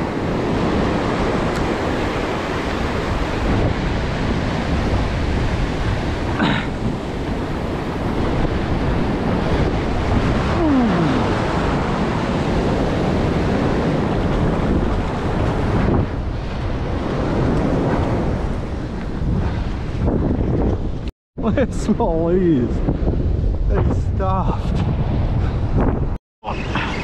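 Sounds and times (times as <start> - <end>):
surf breaking on sand: 0.0 - 21.0
wind buffeting microphone: 0.0 - 27.0.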